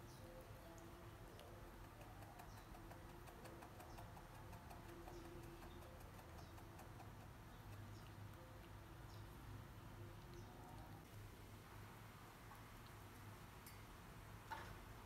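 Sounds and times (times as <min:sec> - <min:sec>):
faint scattered ticks: 0:00.0 - 0:11.2
faint room hiss: 0:00.0 - 0:15.0.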